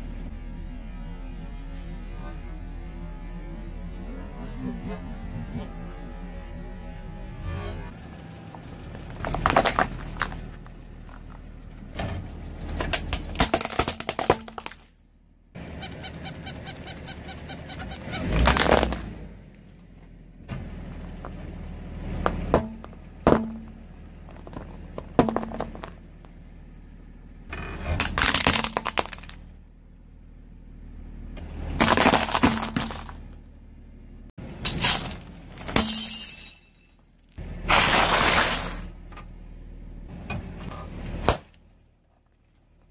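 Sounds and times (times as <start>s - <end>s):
low engine hum: 0.0s - 42.9s
tyre crushing objects: 18.2s - 19.1s, 22.2s - 26.0s, 28.0s - 29.5s, 31.7s - 33.3s, 34.6s - 35.9s, 37.6s - 38.9s.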